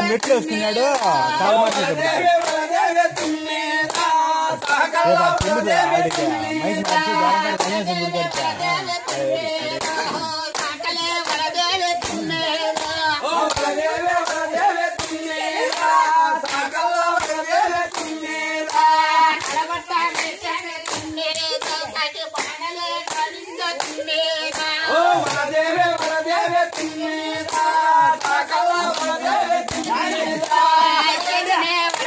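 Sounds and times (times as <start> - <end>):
people clapping in rhythm: 0.0 - 32.0
voices singing: 0.0 - 32.0.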